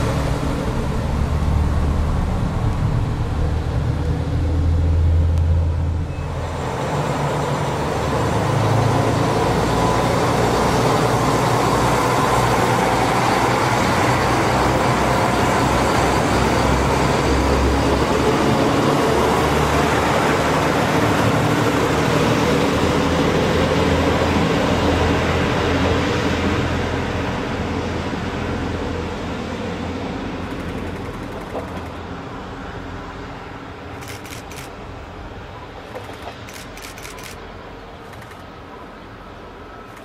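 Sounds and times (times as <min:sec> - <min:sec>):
train running noise: 0:00.0 - 0:40.0.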